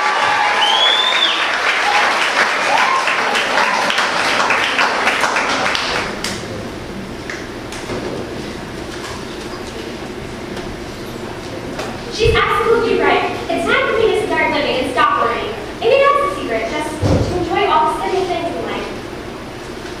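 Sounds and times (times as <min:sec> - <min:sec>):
audience applauding: 0:00.0 - 0:06.5
low room noise: 0:00.0 - 0:20.0.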